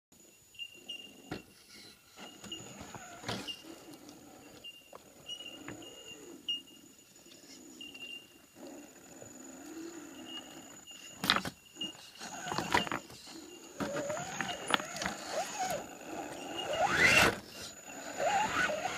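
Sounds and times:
tyres and chassis scraping rock: 1.0 - 6.5, 8.7 - 18.9
electric motor whine: 2.2 - 6.5, 9.3 - 18.9.

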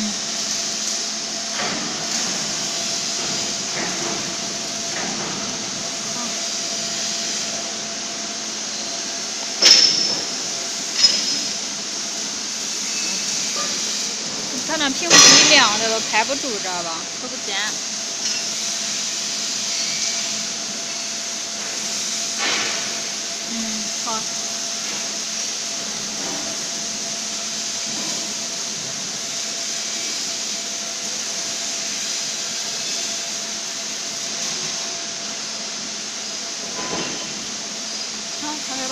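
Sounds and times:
sharp metallic clanks: 9.6 - 11.6, 14.9 - 16.3.

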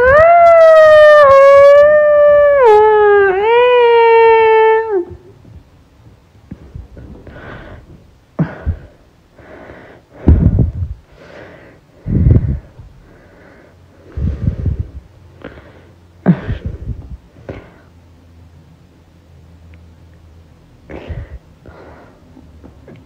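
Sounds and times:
person breathing hard: 6.6 - 18.0, 20.9 - 22.4.

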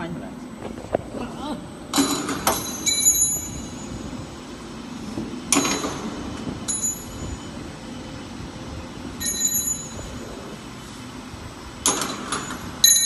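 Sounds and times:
ringing metallic clinks: 6.7 - 7.4, 9.2 - 10.2.

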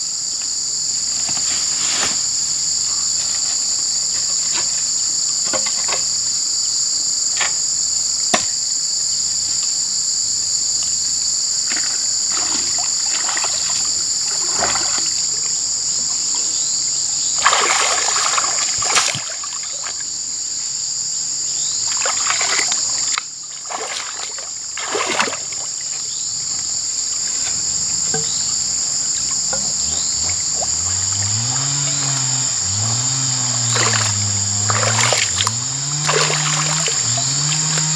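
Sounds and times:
insects buzzing: 0.0 - 37.9
water splashing and sloshing: 11.7 - 15.2, 17.4 - 20.0, 21.9 - 26.0, 29.2 - 37.9
sharp knocks: 28.1 - 28.5, 29.3 - 33.0.

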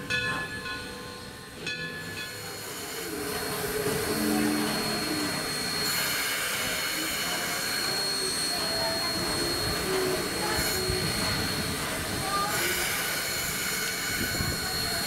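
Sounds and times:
locomotive bell ringing: 0.0 - 15.0
steam locomotive hissing: 0.0 - 15.0.

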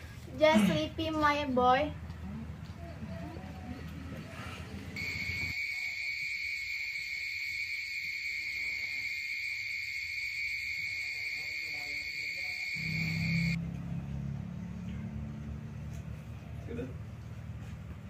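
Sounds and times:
crickets trilling: 5.0 - 13.6.

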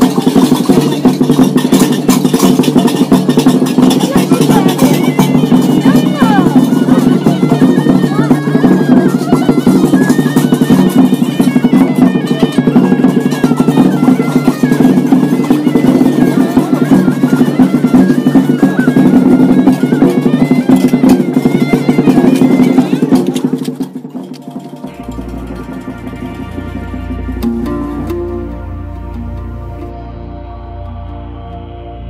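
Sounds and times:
light percussion: 0.0 - 32.0
reedy wind instrument melody: 0.0 - 32.0
low drone: 24.8 - 32.0.

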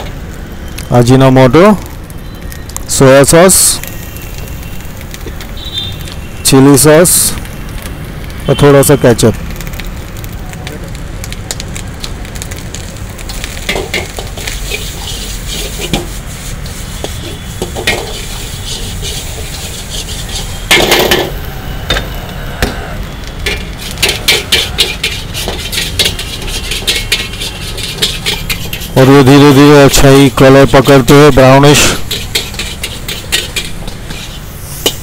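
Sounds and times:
food sizzling: 0.0 - 35.0
metal spatula scraping a wok: 13.6 - 21.4, 23.4 - 31.0, 31.6 - 35.0.

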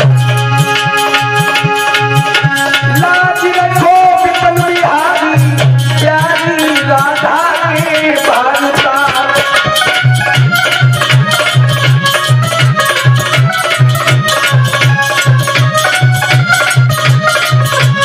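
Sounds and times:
dholak drum beat: 0.0 - 18.0
harmonium chords: 0.0 - 18.0
pitch-bending melody line: 0.0 - 18.0.

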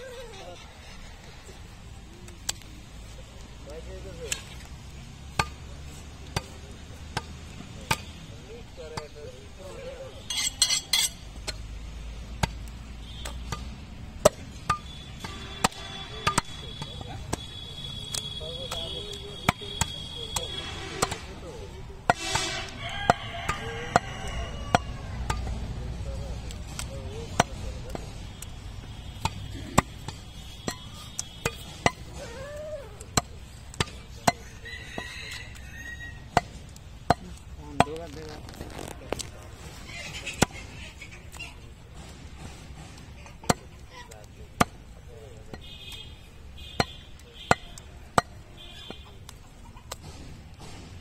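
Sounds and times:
cleaver chopping meat on wood block: 46.7 - 49.0.

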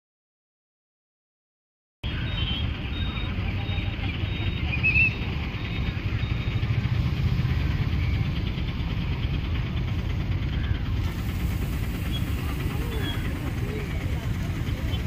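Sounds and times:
low street ambience rumble: 2.0 - 15.0.

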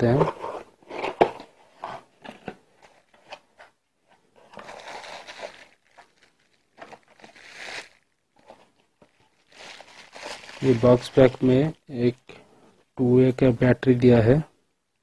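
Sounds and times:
bubble wrap and cardboard rustling: 2.8 - 11.7.

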